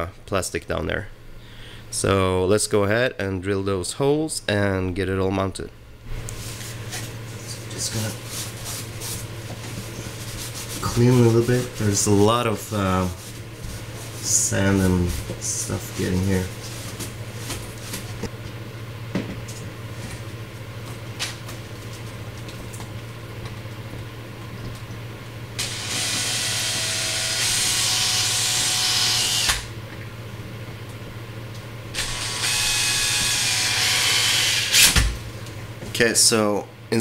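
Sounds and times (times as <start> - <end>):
power drill boring plastic: 25.6 - 29.7, 32.0 - 34.9.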